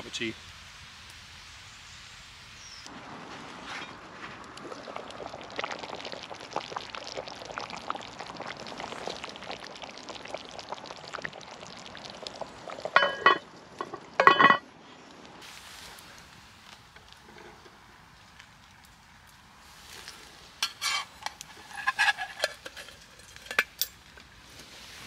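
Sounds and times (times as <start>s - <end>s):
stew bubbling and popping: 4.0s - 24.4s
metal lid clanking on pot: 13.0s - 13.4s, 14.2s - 14.6s.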